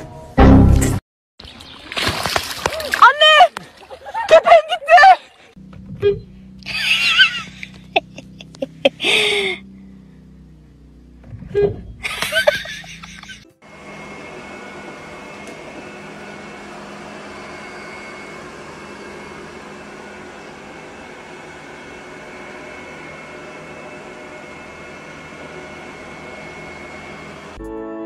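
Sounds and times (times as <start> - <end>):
robot vacuum whirring: 12.0 - 27.6.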